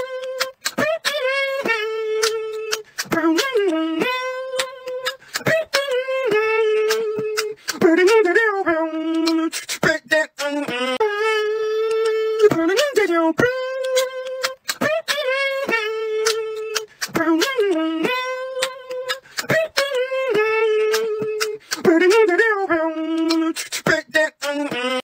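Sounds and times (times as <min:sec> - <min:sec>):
mouth percussion clicks and pops: 0:00.0 - 0:25.0
person holding sung notes: 0:00.0 - 0:25.0.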